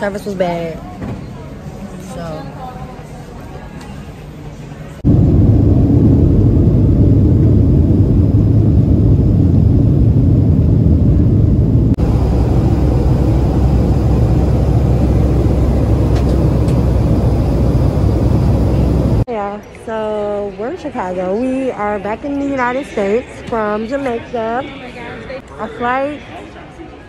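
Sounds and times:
jet cabin engine roar: 5.0 - 19.3.

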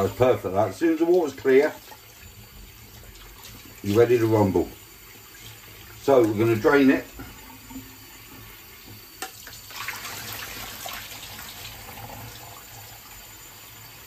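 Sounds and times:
water pouring into sieve: 0.0 - 8.2, 9.2 - 14.0
tap running into metal sink: 7.1 - 10.6.

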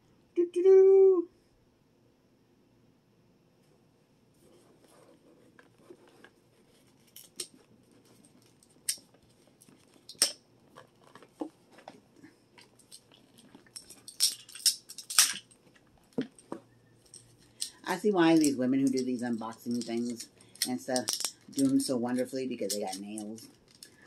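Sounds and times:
plastic toy parts clicking: 10.0 - 10.4, 12.6 - 16.5, 17.1 - 24.0.

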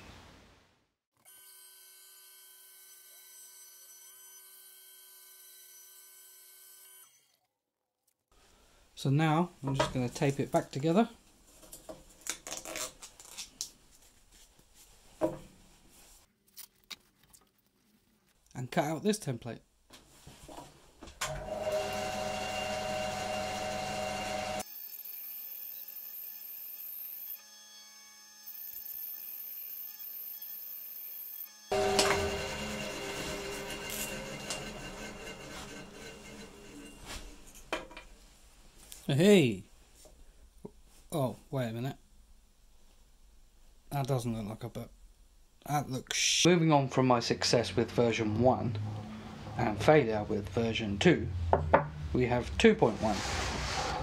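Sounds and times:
bandsaw whine cutting wood: 21.3 - 27.5, 31.4 - 37.7.

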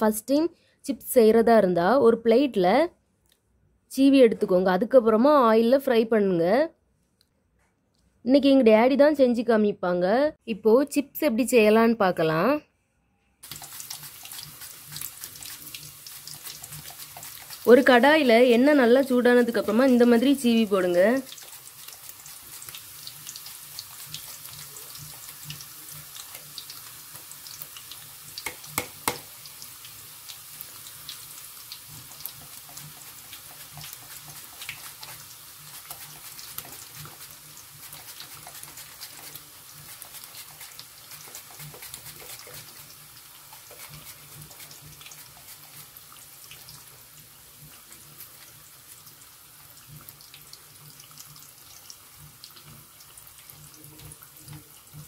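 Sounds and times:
plantain deep-frying in oil: 13.4 - 55.0.

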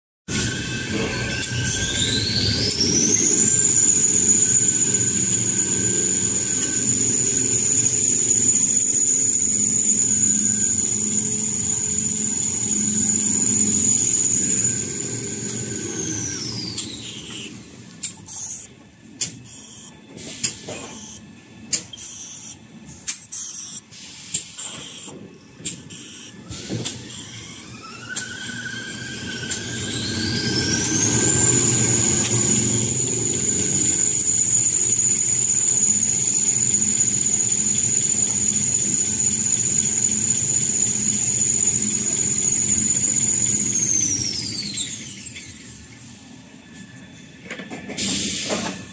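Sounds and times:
rollers humming: 0.3 - 19.1, 26.3 - 47.9
machine drive whine: 0.3 - 48.9.

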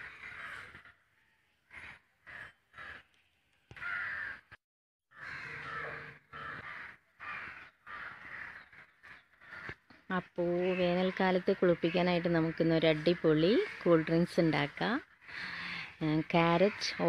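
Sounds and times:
crow cawing: 0.0 - 1.0, 1.7 - 3.1, 3.8 - 10.0, 10.6 - 14.0, 15.1 - 15.9.

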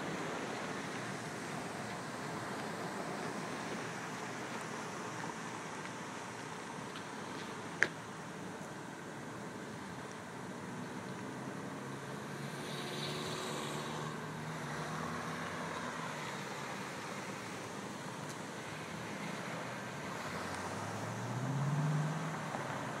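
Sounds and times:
traffic hum: 0.0 - 23.0
vehicle engine passing: 11.3 - 16.5, 20.1 - 23.0.

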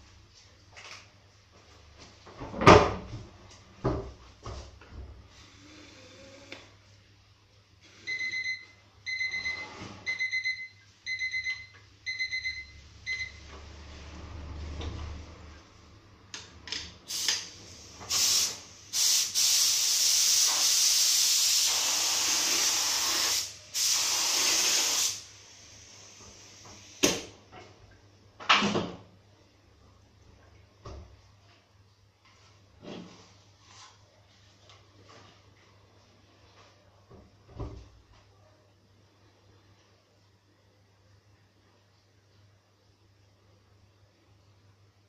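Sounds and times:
spray gun hissing: 17.1 - 26.2.

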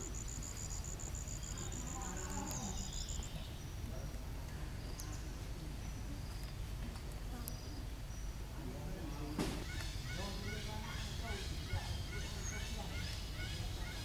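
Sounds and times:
insect trilling in rapid pulses: 0.0 - 3.4.

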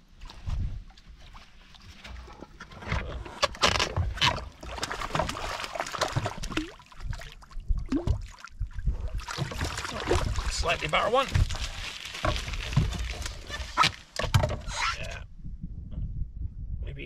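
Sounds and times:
water splashing and sloshing: 0.0 - 15.0
wind on microphone: 0.3 - 1.0, 6.3 - 11.9, 12.5 - 17.0.

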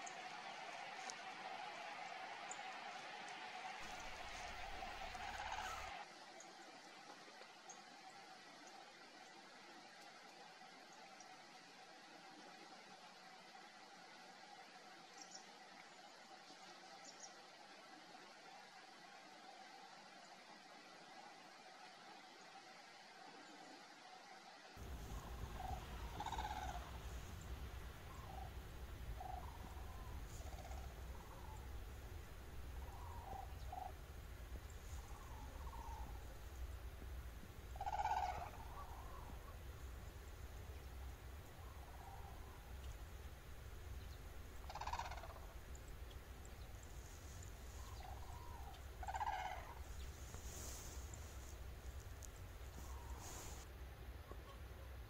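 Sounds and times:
cranes calling: 3.8 - 6.0, 24.8 - 53.6
steady low rumble: 24.8 - 54.2.

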